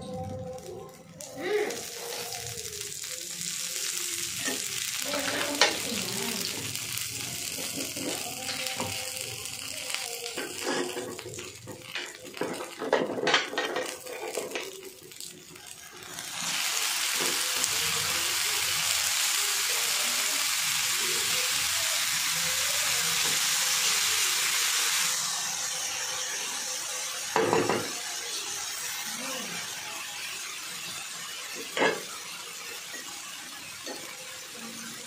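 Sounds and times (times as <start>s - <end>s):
batter sizzling on a hot griddle: 0.2s - 35.0s
utensils clinking and knocking: 10.4s - 14.8s.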